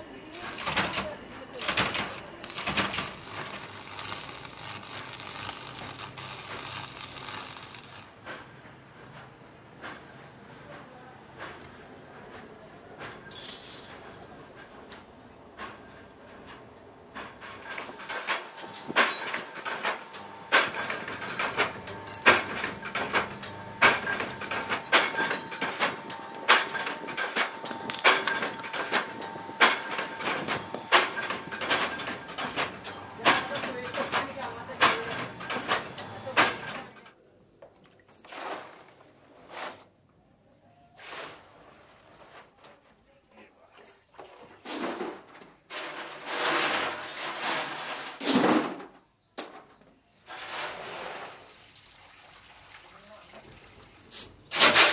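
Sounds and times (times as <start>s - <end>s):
welding arc crackling: 0.2s - 8.2s, 18.7s - 36.8s
chain and tools clinking: 13.3s - 14.2s, 20.9s - 32.9s.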